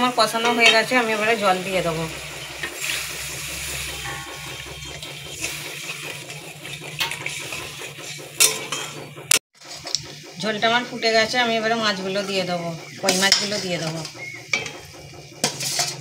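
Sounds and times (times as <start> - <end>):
water hissing in hot pan: 0.0 - 8.4
metal spatula scraping wok: 0.2 - 9.8, 13.0 - 16.0.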